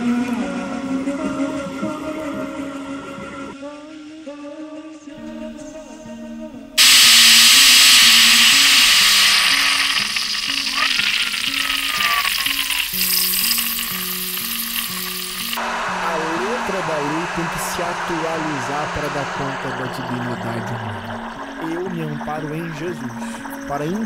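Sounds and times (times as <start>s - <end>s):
loud static hiss: 6.8s - 22.3s
music with held low notes: 12.4s - 24.0s.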